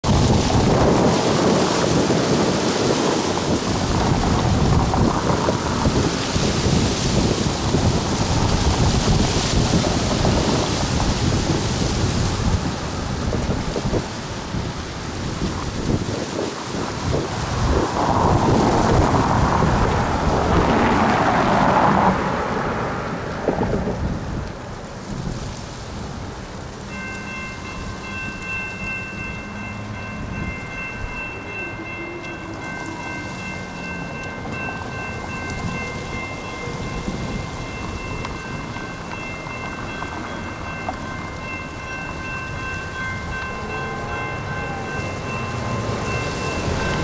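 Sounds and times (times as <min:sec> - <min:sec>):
road traffic: 0:00.0 - 0:47.0
wind rumble on microphone: 0:00.0 - 0:47.0
car tyre noise: 0:03.3 - 0:27.0.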